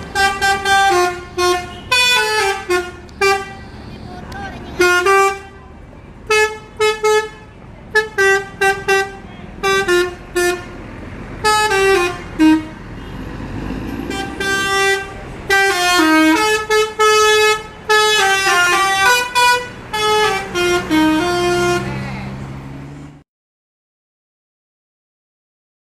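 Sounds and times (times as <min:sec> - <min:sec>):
musical bus horn melody: 0:00.0 - 0:03.9, 0:04.7 - 0:13.3, 0:14.0 - 0:22.0.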